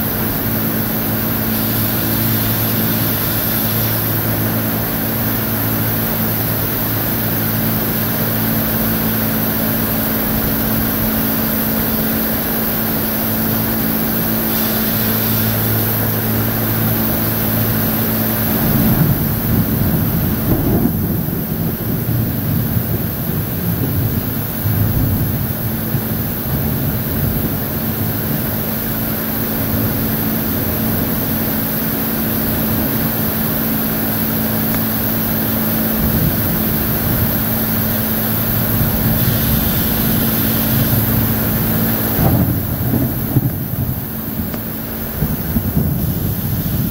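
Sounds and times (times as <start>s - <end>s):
low engine hum: 0.0s - 46.9s
wind: 0.0s - 46.9s
heavy rain: 0.1s - 46.9s.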